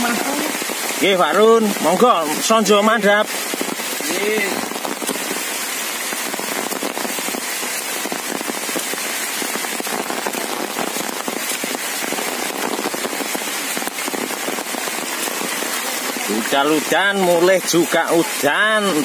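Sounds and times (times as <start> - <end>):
heavy rain falling: 0.0 - 19.0.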